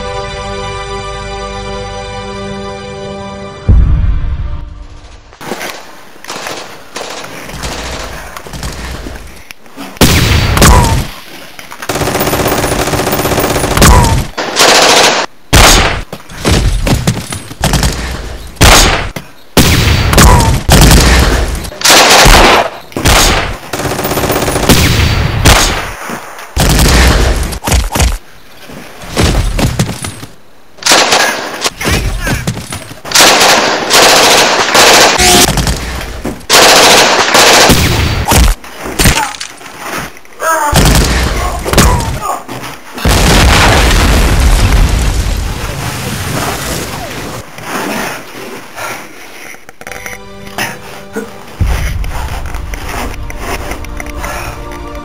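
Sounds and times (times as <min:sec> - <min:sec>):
automatic gunfire: 0:11.9 - 0:16.0, 0:20.2 - 0:25.8, 0:33.1 - 0:35.6, 0:36.5 - 0:38.0
single gunshots: 0:13.6 - 0:23.6, 0:24.5 - 0:26.0, 0:30.8 - 0:32.1.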